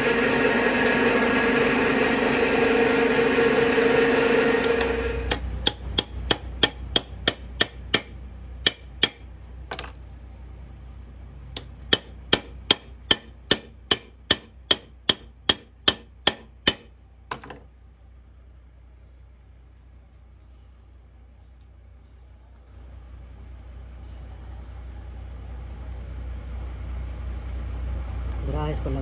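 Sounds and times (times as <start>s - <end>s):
drill press motor running: 0.0s - 5.8s
hammer tapping metal: 5.2s - 10.0s, 11.6s - 17.7s.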